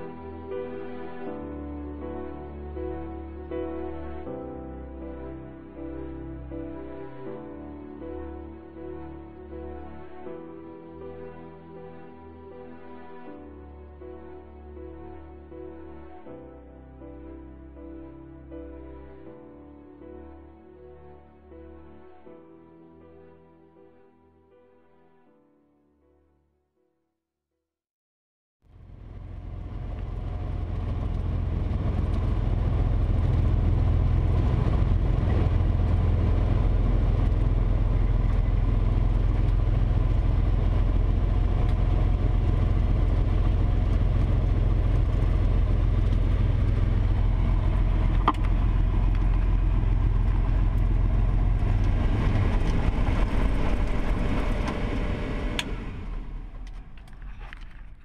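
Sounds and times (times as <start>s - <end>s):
aircraft engine droning: 28.7s - 58.0s.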